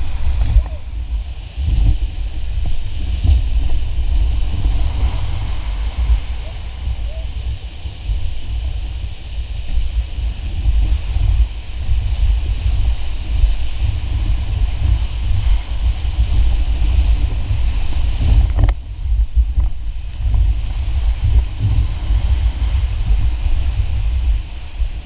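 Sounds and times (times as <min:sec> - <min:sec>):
whitewater rushing: 0:00.0 - 0:18.5
wind buffeting microphone: 0:00.0 - 0:25.0.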